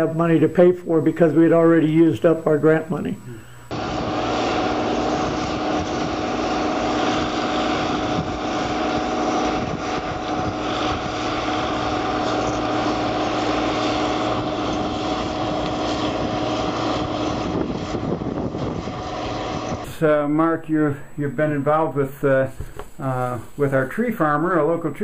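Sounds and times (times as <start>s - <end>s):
wood chipper engine droning: 3.4s - 20.1s.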